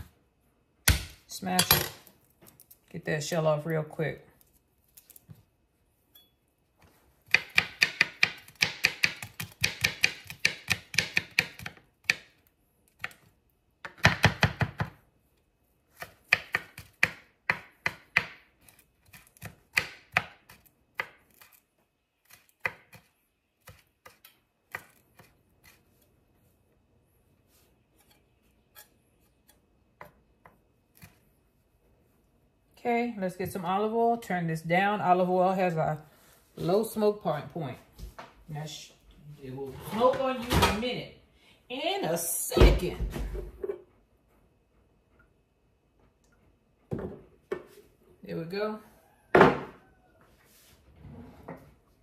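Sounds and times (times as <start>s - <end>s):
knife chopping on cutting board: 7.3s - 12.3s, 16.0s - 21.2s.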